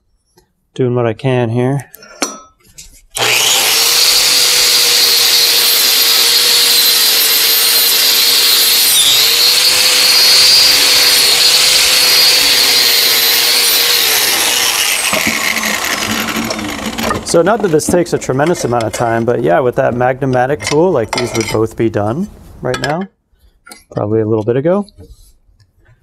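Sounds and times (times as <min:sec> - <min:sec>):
angle grinder wire brush whine: 0:03.2 - 0:19.4.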